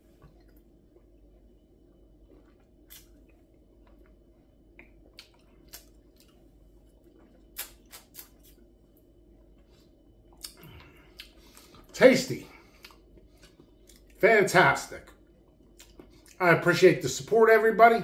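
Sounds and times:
low steady hum: 0.0s - 18.0s
wet mouth clicks and lip smacks: 2.9s - 3.4s, 4.8s - 6.4s, 7.5s - 8.6s, 10.3s - 11.7s, 15.8s - 16.4s.

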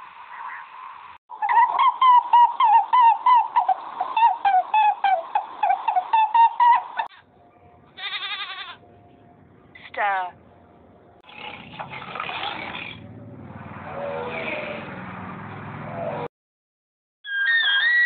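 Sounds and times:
sheep bleat: 8.0s - 8.8s.

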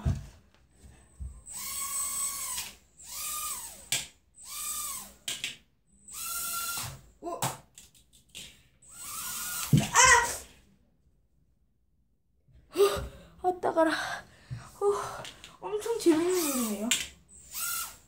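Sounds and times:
toy drone motors whining: 1.4s - 5.3s, 6.0s - 7.0s, 8.8s - 10.5s, 16.0s - 18.0s.

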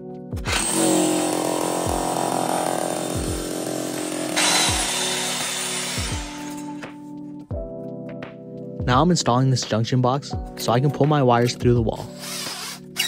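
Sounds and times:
electric drill boring into wall: 0.4s - 6.8s, 12.2s - 13.0s
background music with beat: 1.3s - 12.7s.

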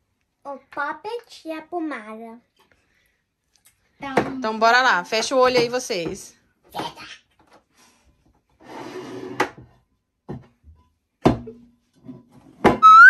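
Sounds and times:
bowl squeaking: 12.8s - 13.0s.

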